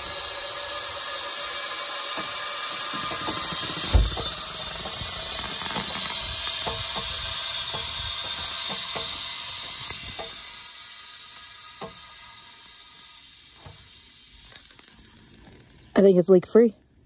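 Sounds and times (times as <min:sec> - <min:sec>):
thump: 0:03.1 - 0:04.3.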